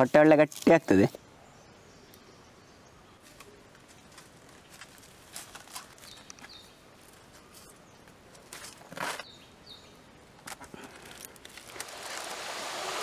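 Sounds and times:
vine and dry leaves rustling: 0:00.0 - 0:01.2, 0:03.1 - 0:13.0
bird chirping: 0:06.0 - 0:06.8, 0:09.2 - 0:10.1.

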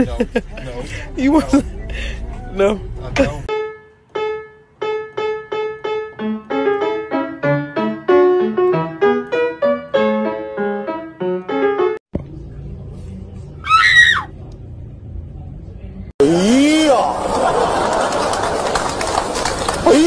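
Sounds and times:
solo piano music: 0:03.5 - 0:12.0.

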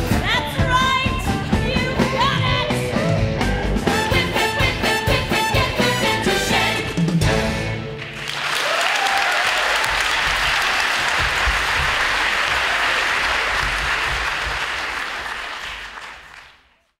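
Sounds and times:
audience applauding: 0:07.9 - 0:17.0.

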